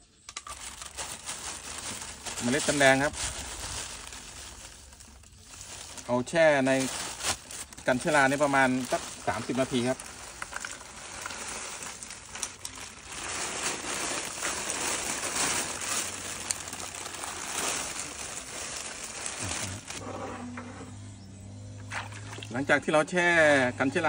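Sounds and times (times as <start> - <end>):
seed pods clicking into bucket: 0.3 - 0.9
plastic bag crinkling: 0.3 - 20.0.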